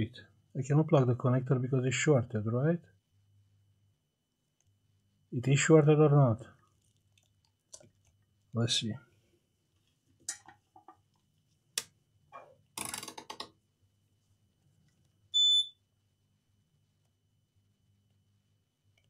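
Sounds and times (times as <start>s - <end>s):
multimeter beep: 15.4s - 15.8s.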